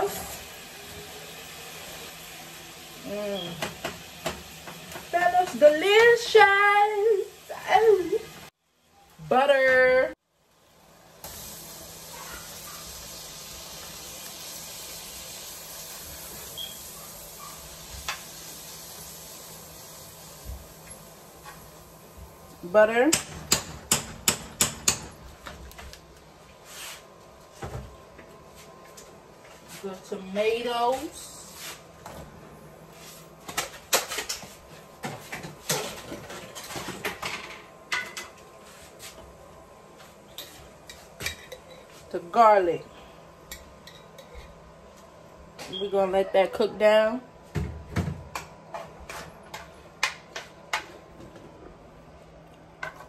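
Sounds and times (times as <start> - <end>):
butter sizzling in a frying pan: 0.0 - 8.6, 11.2 - 23.0.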